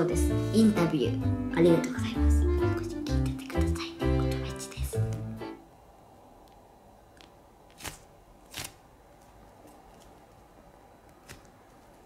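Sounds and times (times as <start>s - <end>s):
sticky crackles: 6.4s - 12.0s
foam toy squishing: 7.1s - 12.0s.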